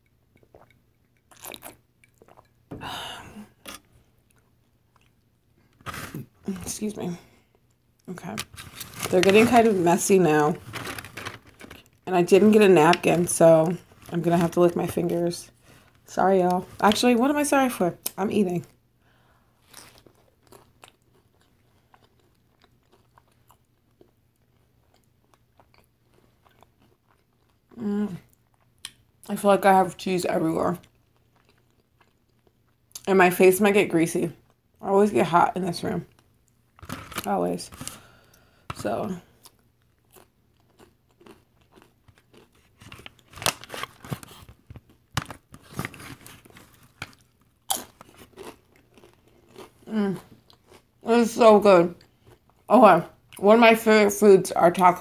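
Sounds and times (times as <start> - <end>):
chewing crunchy chips: 0.4 - 2.5, 19.6 - 29.0, 30.8 - 33.0, 39.3 - 51.0.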